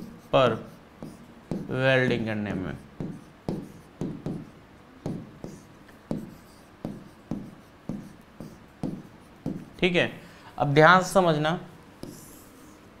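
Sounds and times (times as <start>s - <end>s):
stylus tapping and scratching: 0.0s - 9.9s.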